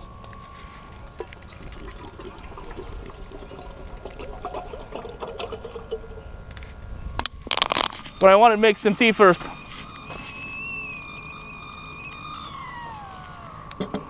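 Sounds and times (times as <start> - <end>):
water pouring into kettle: 1.2 - 6.3.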